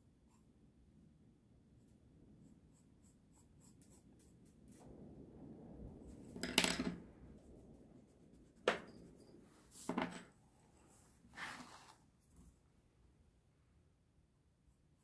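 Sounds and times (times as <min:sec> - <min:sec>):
scratchy sketching strokes: 0:02.6 - 0:05.4, 0:10.9 - 0:12.1.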